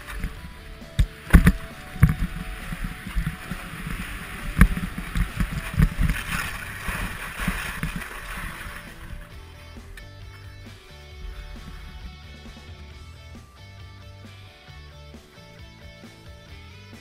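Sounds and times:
wind rumbling on microphone: 0.0 - 12.7
skis scraping on snow: 1.2 - 9.4.

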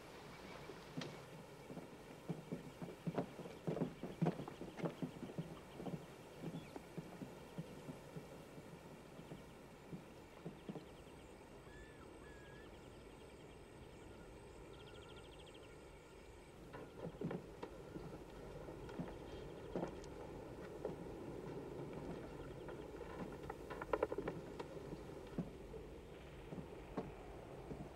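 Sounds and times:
faint outdoor background: 0.0 - 27.9
footsteps on wooden ties: 0.3 - 11.1, 16.7 - 27.9.

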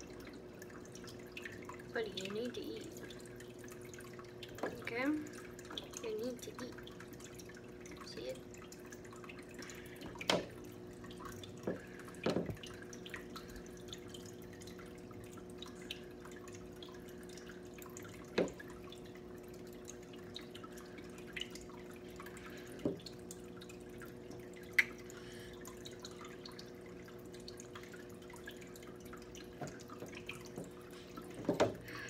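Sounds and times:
faint dripping ticks: 0.0 - 32.0.

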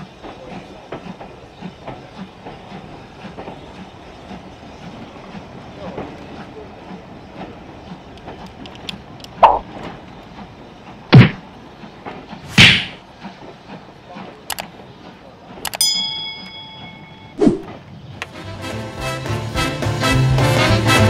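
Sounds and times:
train pulling away: 0.0 - 21.0
sharp thuds: 11.1 - 11.4, 12.5 - 13.0
bell ding: 15.8 - 17.4
whoosh: 17.4 - 17.8.

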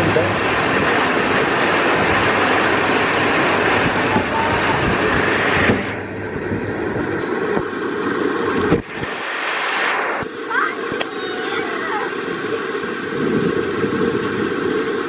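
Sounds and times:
heavy rain hissing: 0.0 - 6.0, 8.7 - 14.4.

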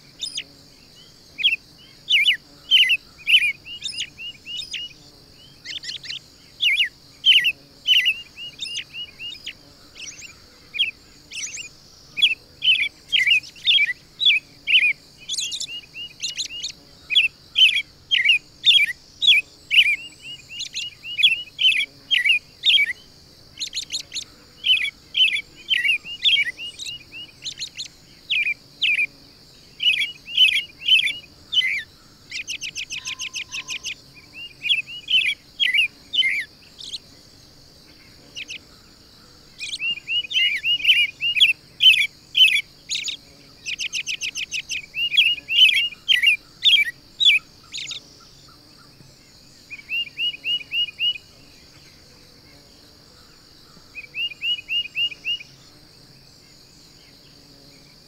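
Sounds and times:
faint high hiss: 0.0 - 58.0
songbirds chirping: 0.0 - 58.0
bird trills: 29.8 - 37.0.

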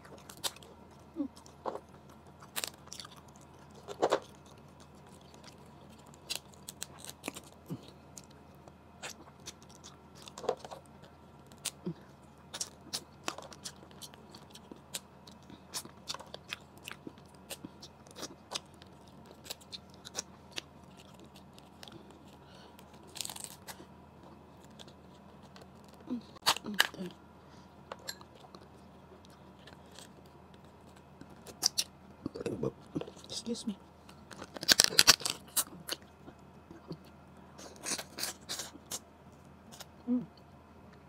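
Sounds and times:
chewing: 0.0 - 27.1
crab shell cracking: 34.2 - 36.0.

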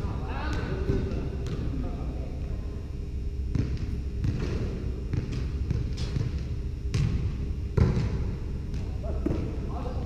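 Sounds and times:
volleyballs thudding on wooden floor: 7.8 - 9.5.

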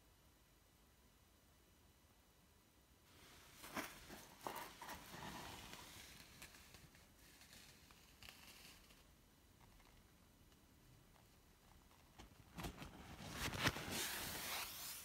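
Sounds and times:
soft hiss: 0.0 - 15.0
faint rustling: 3.1 - 15.0.

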